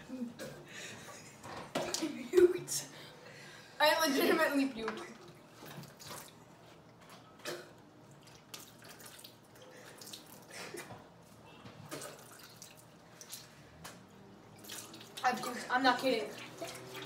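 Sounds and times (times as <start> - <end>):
water splashing into plastic bowl: 11.8 - 13.8, 14.6 - 17.0.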